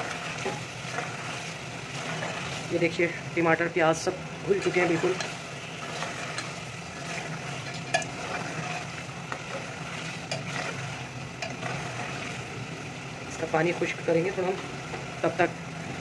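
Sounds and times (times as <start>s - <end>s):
spoon stirring in a pot: 0.0s - 3.0s, 4.5s - 12.5s
gravy simmering: 0.0s - 16.0s
spoon clinking against pot: 7.7s - 8.8s.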